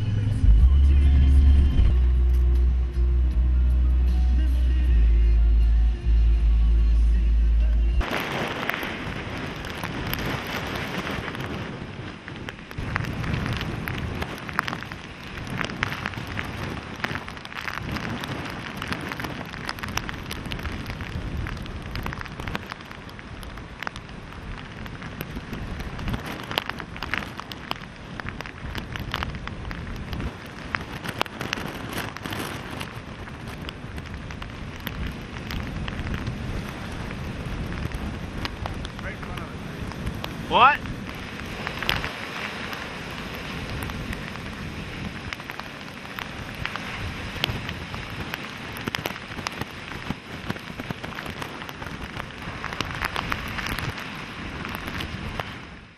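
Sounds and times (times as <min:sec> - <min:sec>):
low rumble: 0:00.0 - 0:12.0, 0:28.2 - 0:48.0
gusty wind: 0:00.0 - 0:55.9
heavy rain: 0:00.0 - 0:55.9
sharp raindrop hits: 0:00.0 - 0:55.9.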